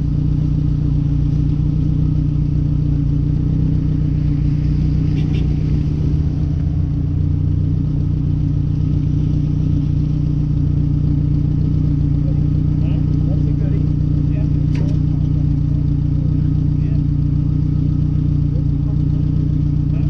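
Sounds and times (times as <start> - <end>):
pickup engine idling: 0.0 - 20.0.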